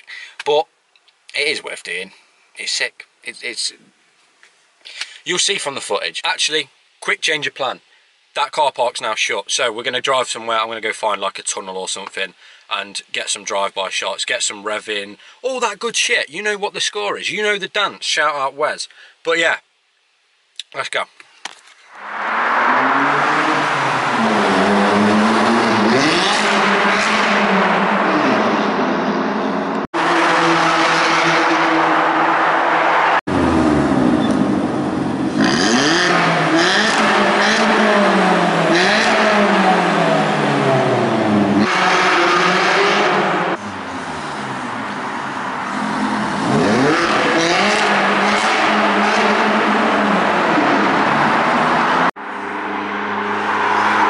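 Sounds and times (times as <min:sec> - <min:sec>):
loud car exhaust revving: 0:22.0 - 0:54.0.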